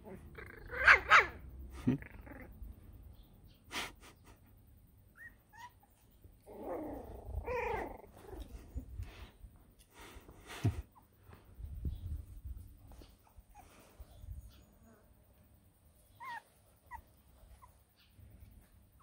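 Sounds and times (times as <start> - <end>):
puppies squeaking and yapping: 5.2 - 6.1, 16.1 - 18.1.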